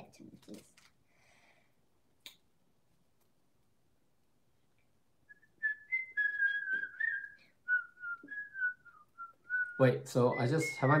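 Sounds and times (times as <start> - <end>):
person whistling a tune: 5.3 - 11.0.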